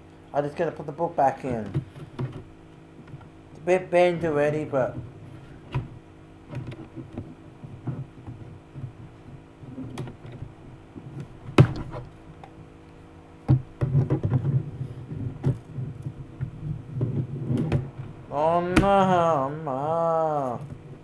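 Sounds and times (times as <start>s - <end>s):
rustling: 4.2s - 19.4s.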